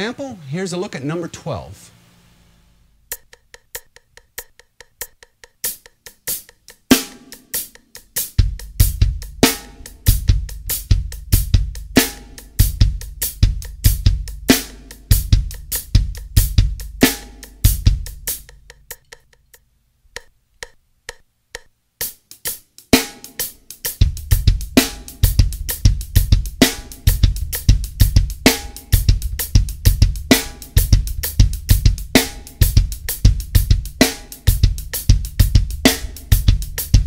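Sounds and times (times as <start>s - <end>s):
hi-hat shuffle: 3.1s - 19.6s, 22.0s - 37.0s
bass drum: 8.3s - 18.9s, 23.9s - 37.0s.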